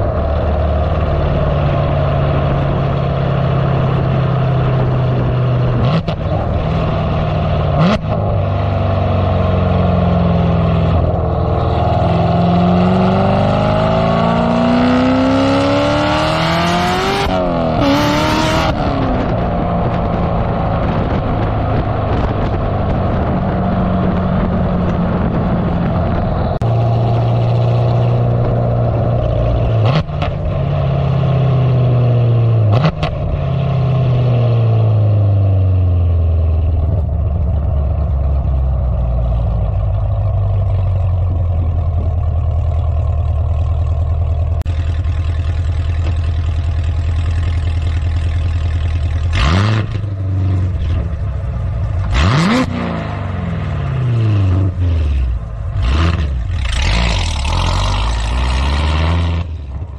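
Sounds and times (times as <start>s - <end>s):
sports car exhaust accelerating: 0.0s - 59.9s
exhaust cracks: 17.2s - 31.2s, 35.5s - 59.9s.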